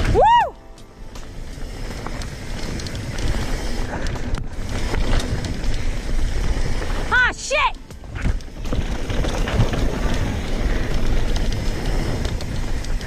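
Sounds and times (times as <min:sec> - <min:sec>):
tyres rushing on dirt: 0:00.0 - 0:13.0
wind noise: 0:00.0 - 0:13.0
bike knocking over bumps: 0:07.9 - 0:13.0.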